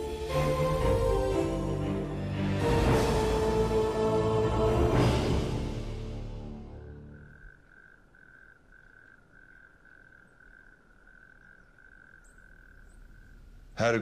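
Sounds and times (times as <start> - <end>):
music: 0.0 - 7.2
frog trilling: 6.8 - 13.8.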